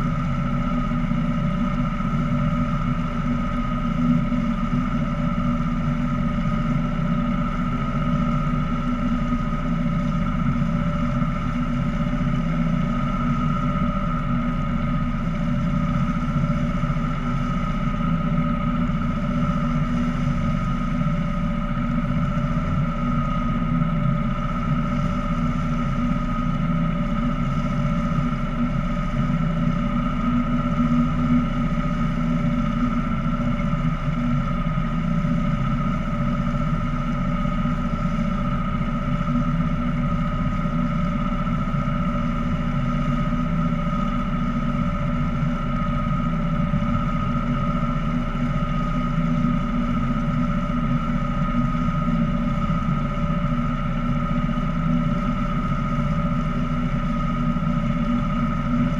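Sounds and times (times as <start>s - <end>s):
boat motor drone: 0.0s - 58.9s
high motor whine: 0.0s - 58.9s.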